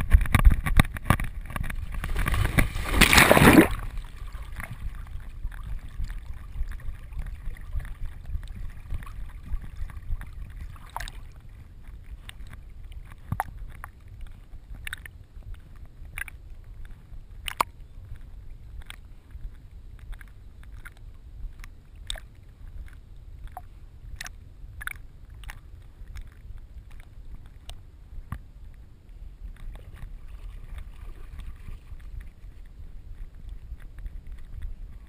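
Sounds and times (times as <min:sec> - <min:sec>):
water sloshing and lapping: 0:00.0 - 0:27.8, 0:29.5 - 0:35.0
dog splashing into water: 0:02.0 - 0:04.8.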